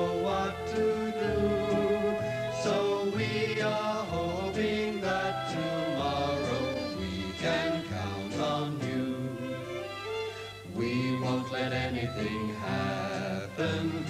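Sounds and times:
voices singing with accompaniment: 0.0s - 14.0s.

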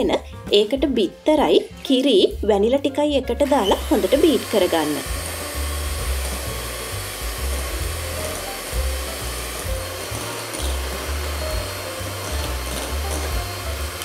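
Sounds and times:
electric hand mixer whirring: 3.4s - 14.0s.

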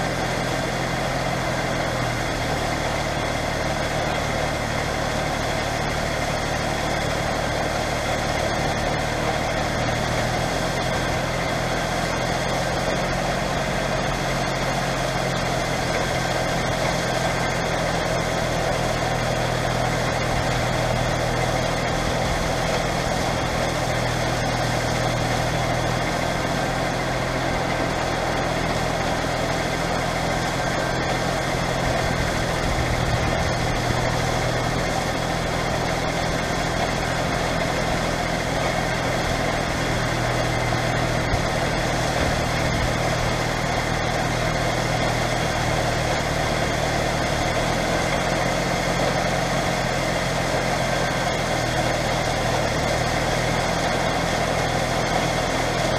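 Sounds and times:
combine harvester hum: 0.0s - 55.9s
diesel engine running steadily: 0.0s - 55.9s.

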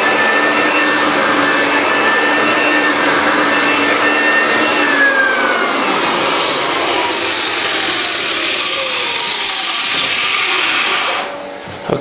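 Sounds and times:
floor sander motor whining: 0.0s - 11.5s.

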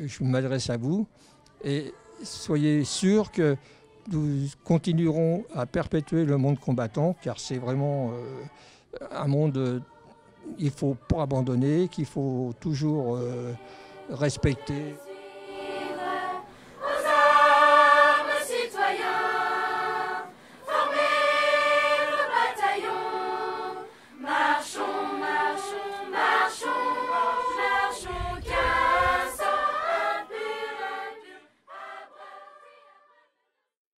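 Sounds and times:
children's choir singing: 9.6s - 33.2s.

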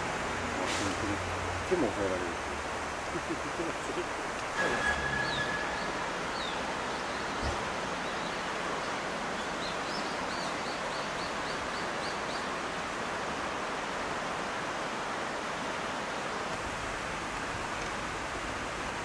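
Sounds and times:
river rippling over stones: 0.0s - 19.0s
bird chirping: 4.6s - 8.4s.

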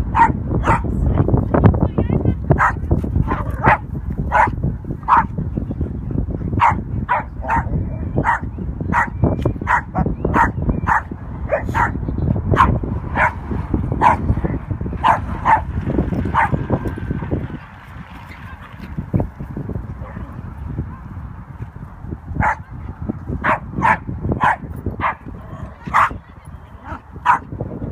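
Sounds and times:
low rumbling noise: 0.0s - 27.9s
dog play-barking: 0.1s - 0.9s, 2.6s - 5.3s, 6.6s - 12.0s, 12.6s - 13.4s, 14.0s - 14.3s, 15.0s - 15.7s, 16.3s - 16.6s, 22.4s - 22.7s, 23.4s - 27.5s.

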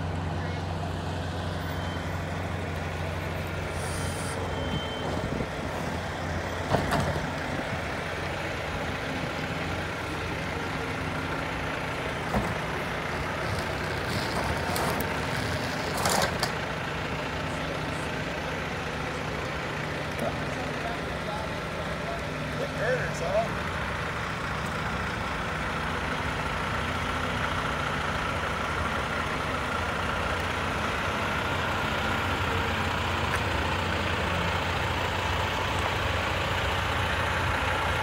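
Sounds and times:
truck diesel engine running: 0.0s - 38.0s
short hiss: 3.7s - 4.5s.

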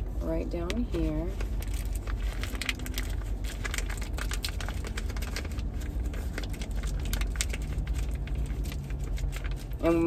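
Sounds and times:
low steady rumble: 0.0s - 10.0s
vinyl pouch crinkling: 0.8s - 10.0s.

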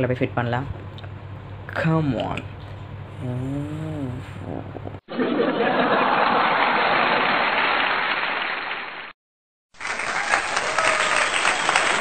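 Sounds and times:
crowd applause: 5.2s - 9.1s, 9.8s - 12.0s.

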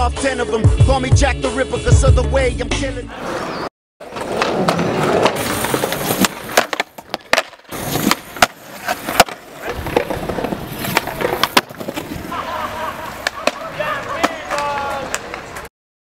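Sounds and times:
skateboard wheels rolling on concrete: 3.1s - 15.7s
skateboard clacking: 4.0s - 15.7s.

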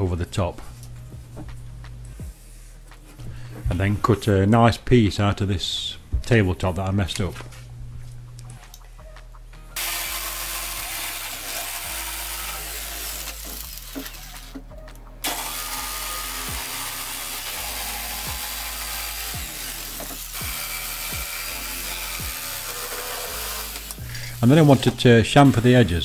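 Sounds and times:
jigsaw cutting wood: 9.8s - 14.5s, 15.2s - 26.0s.

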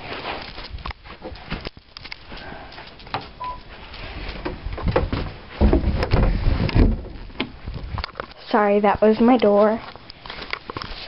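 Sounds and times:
door thudding and rattling: 4.4s - 7.6s.

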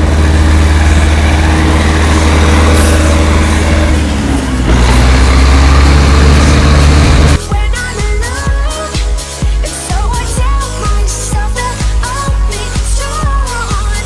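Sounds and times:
tractor diesel engine running hard: 0.0s - 7.5s.

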